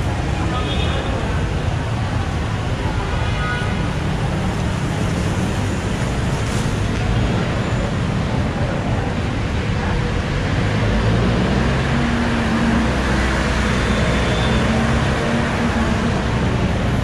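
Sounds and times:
road noise: 0.0s - 17.0s
passing car engines: 3.9s - 17.0s.

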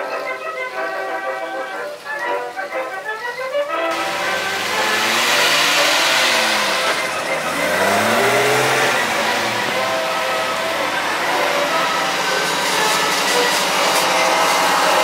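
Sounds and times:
steady rushing noise: 3.9s - 15.0s
vehicle engine revving: 3.9s - 15.0s.

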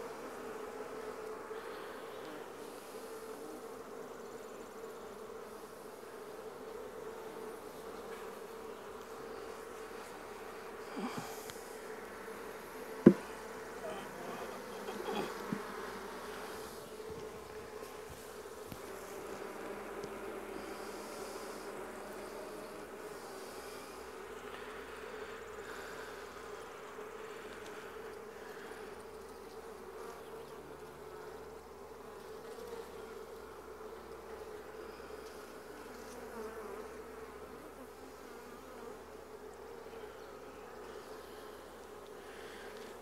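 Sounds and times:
honey bees buzzing: 0.0s - 43.0s
sharp knocks: 13.0s - 13.3s.

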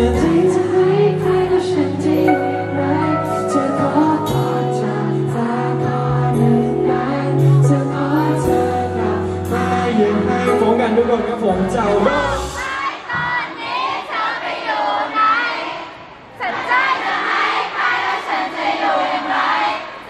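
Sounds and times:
man singing into a microphone: 0.0s - 12.6s.

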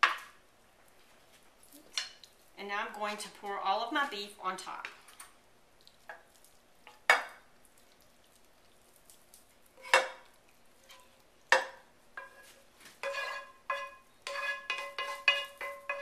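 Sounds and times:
spoon knocking on skillet: 0.0s - 0.4s, 6.9s - 7.4s, 9.8s - 16.0s.

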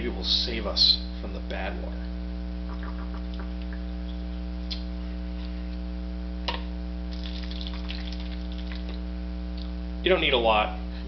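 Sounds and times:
electrical mains hum: 0.0s - 11.0s
water trickling into glass bottle: 7.1s - 9.0s.

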